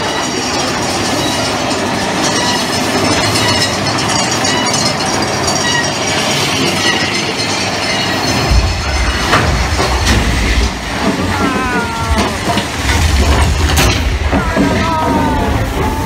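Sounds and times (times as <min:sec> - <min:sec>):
roller coaster cars clattering: 0:00.0 - 0:16.0
deep rumble: 0:08.2 - 0:16.0.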